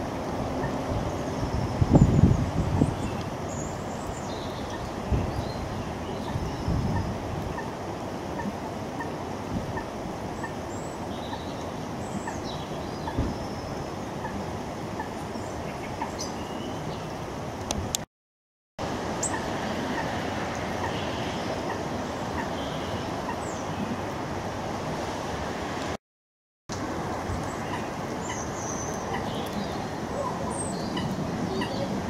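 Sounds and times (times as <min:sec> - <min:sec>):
birds chirping: 0:00.4 - 0:07.8, 0:09.8 - 0:17.2, 0:19.2 - 0:24.0, 0:27.3 - 0:32.0.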